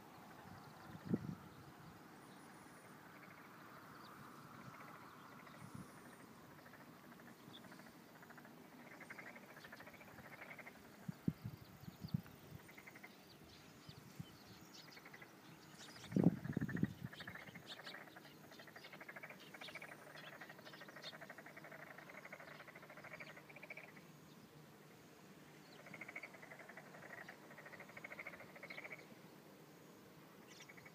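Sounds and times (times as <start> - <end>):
frogs calling in chorus: 2.5 - 11.3, 12.6 - 13.2, 14.9 - 24.1, 25.7 - 29.1, 30.4 - 30.9.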